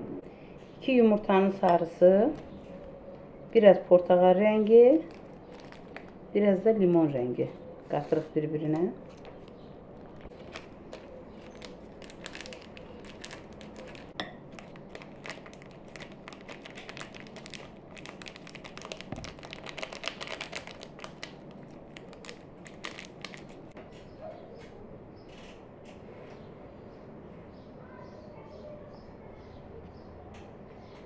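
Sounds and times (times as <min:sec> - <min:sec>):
plastic sachets crinkling: 0:04.5 - 0:06.9, 0:08.7 - 0:23.8.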